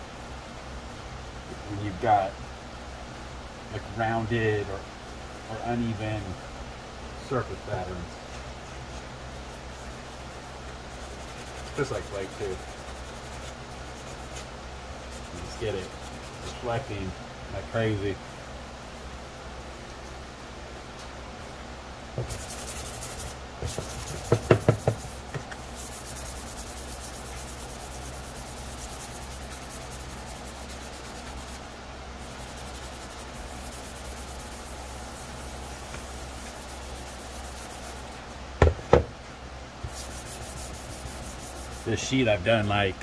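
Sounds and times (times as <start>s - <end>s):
sanding plastic by hand: 8.9s - 16.9s, 22.2s - 38.2s, 39.9s - 42.0s
knocks: 24.2s - 25.6s, 38.6s - 39.1s.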